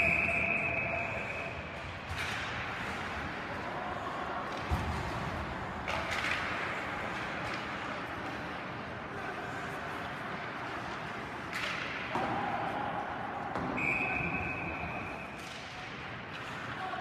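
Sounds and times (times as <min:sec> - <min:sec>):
referee's whistle: 0:00.0 - 0:01.6, 0:13.6 - 0:15.3
skates and sticks on ice: 0:01.8 - 0:14.6.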